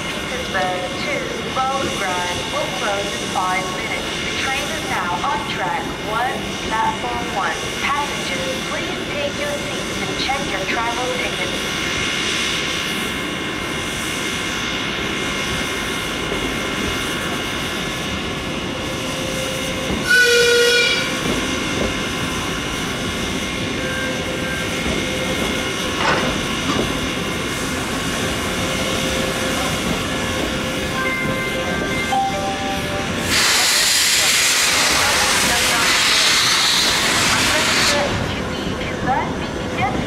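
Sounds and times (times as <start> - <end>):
steam locomotive hissing: 0.0 - 40.0
steam whistle blast: 20.0 - 21.1.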